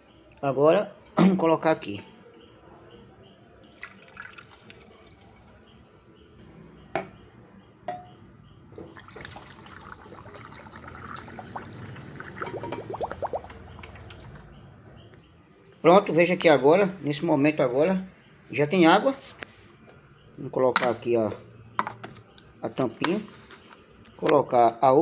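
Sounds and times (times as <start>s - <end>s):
water pouring into tank: 3.7s - 5.5s, 8.8s - 14.5s.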